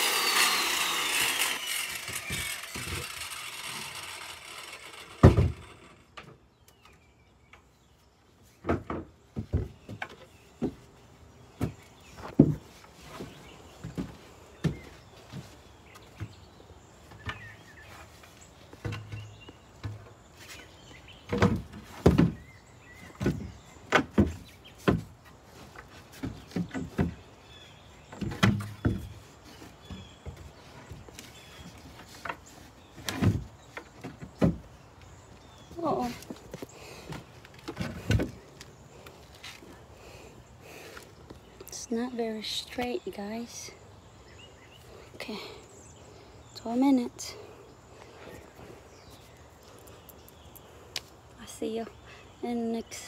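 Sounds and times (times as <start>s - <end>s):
circular saw: 0.0s - 6.1s.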